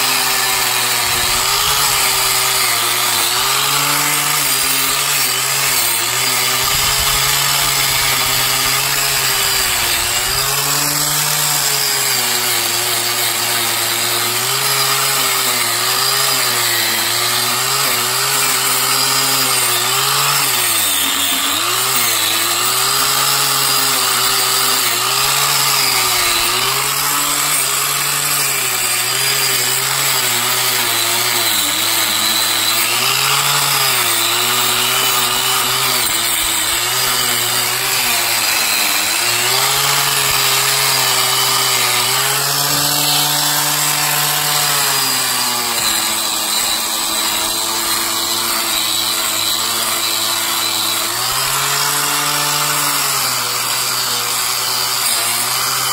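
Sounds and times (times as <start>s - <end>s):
angle grinder grinding metal: 0.0s - 55.9s.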